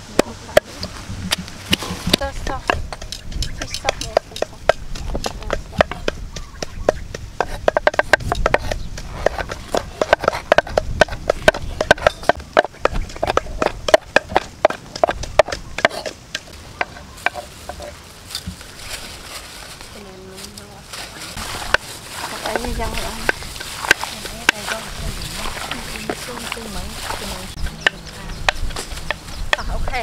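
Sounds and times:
food mixed by hand in bowl: 0:07.4 - 0:30.0.

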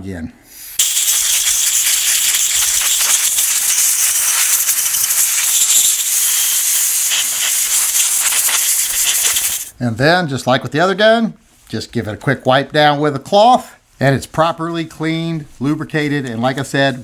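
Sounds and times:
compressed air blow gun hissing: 0:00.5 - 0:09.7.

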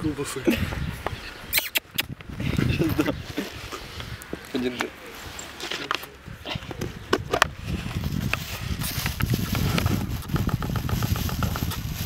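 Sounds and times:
wind rumbling on microphone: 0:00.0 - 0:04.5, 0:06.1 - 0:12.0
sharp clicks: 0:01.5 - 0:02.2.

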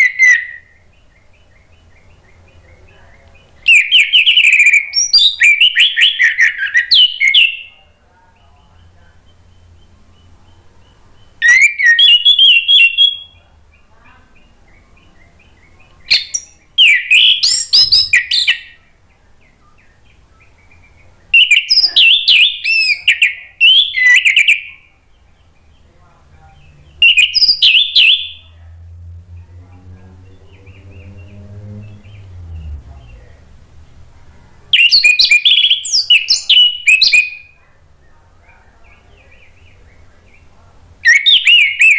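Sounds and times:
faint low hum: 0:00.0 - 0:41.8
thrush singing whistled notes: 0:03.6 - 0:07.7, 0:08.8 - 0:13.4, 0:14.4 - 0:24.9, 0:26.5 - 0:28.6, 0:34.8 - 0:37.6, 0:41.0 - 0:41.9.

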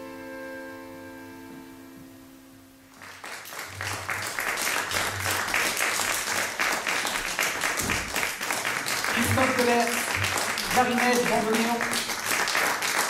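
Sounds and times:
bandoneon chord: 0:00.0 - 0:02.8
audience applause: 0:02.9 - 0:13.0.

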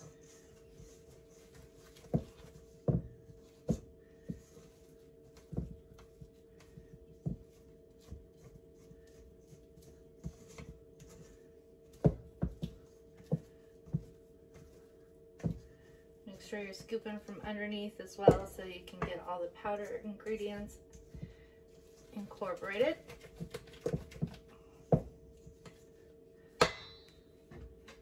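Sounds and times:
faint steady hum: 0:00.0 - 0:28.0.

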